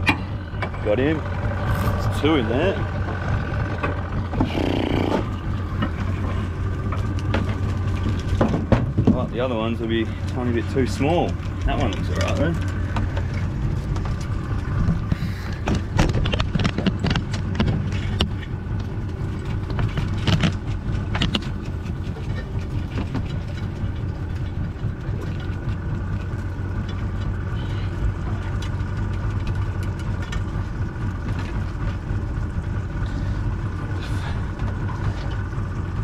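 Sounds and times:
boat engine idling: 0:00.0 - 0:36.0.

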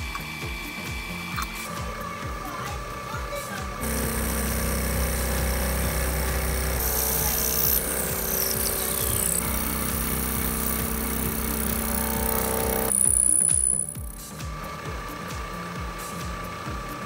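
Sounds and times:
background music: 0:00.0 - 0:17.0
milling machine motor hum: 0:00.0 - 0:17.0
end mill cutting chatter: 0:02.8 - 0:14.2.

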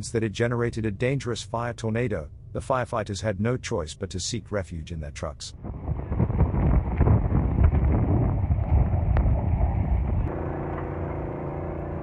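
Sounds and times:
fire crackles: 0:05.6 - 0:10.2
wind blowing on microphone: 0:05.6 - 0:10.3.

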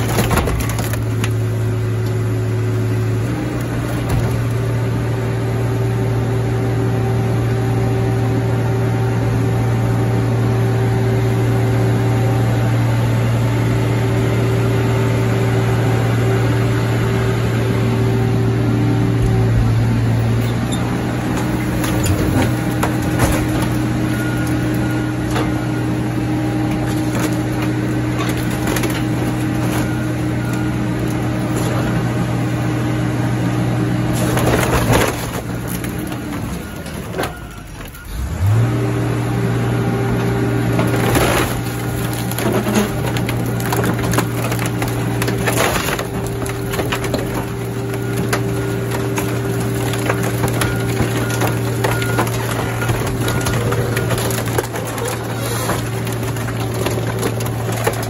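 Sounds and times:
diesel machinery droning: 0:00.0 - 0:58.0
metal clanks and creaks: 0:19.2 - 0:25.7, 0:40.8 - 0:58.0.

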